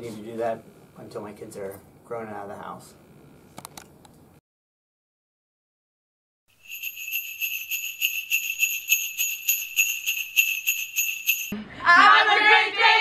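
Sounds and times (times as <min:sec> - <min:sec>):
sleigh bells jingling: 0:06.5 - 0:11.6
girls singing together: 0:11.8 - 0:13.0.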